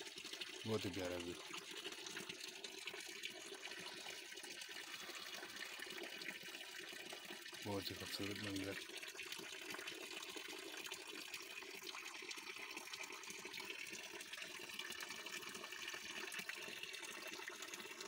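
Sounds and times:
water pouring and splashing into pool: 0.0 - 18.0.

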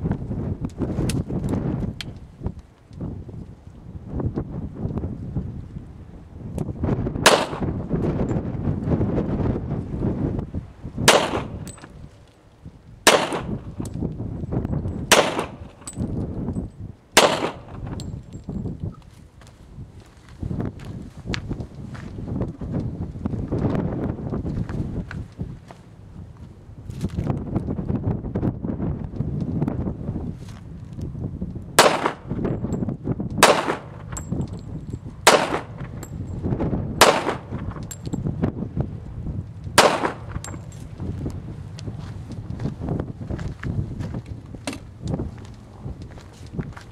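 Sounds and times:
pistol shots with echo: 7.2 - 7.7, 11.0 - 11.8, 13.0 - 13.8, 15.1 - 15.9, 17.2 - 17.8, 31.8 - 32.4, 33.4 - 34.3, 35.2 - 36.0, 37.0 - 37.9, 39.8 - 40.8.

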